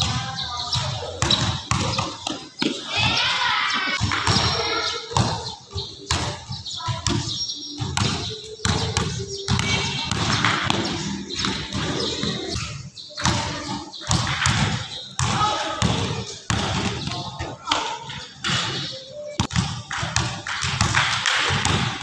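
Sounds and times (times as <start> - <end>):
basketball bouncing on wooden floor: 0.8 - 3.2, 3.9 - 17.3.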